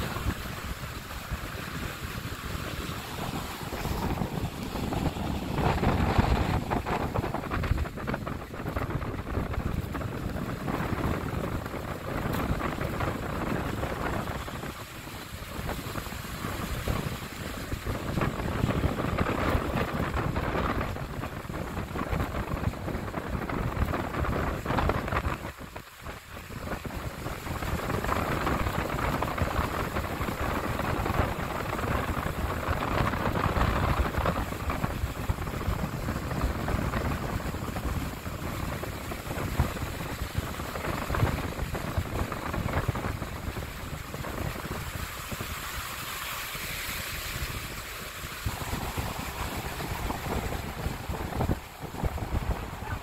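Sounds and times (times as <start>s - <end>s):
fluctuating rush of noise: 0.0s - 53.0s
wind buffeting microphone: 0.0s - 53.0s.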